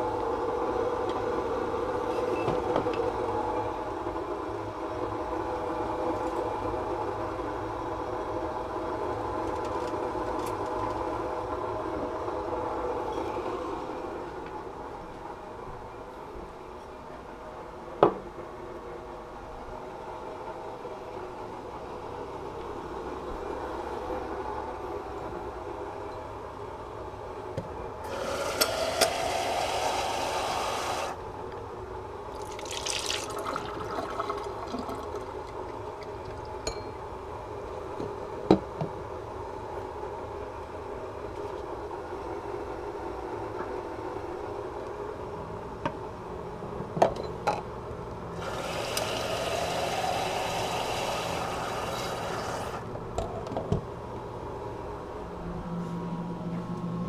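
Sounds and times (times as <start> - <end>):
water pouring into a pot: 32.4 - 36.6
sharp knocks and clinks: 36.6 - 37.0.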